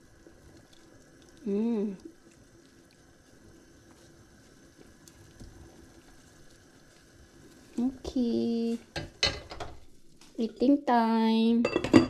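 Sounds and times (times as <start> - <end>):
soup splashing: 0.0 - 8.1
person humming: 1.4 - 2.0.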